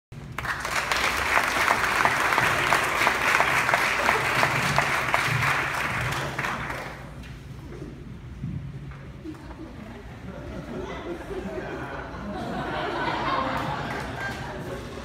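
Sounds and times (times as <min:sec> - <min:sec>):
audience applauding: 0:00.2 - 0:07.2, 0:13.3 - 0:15.0.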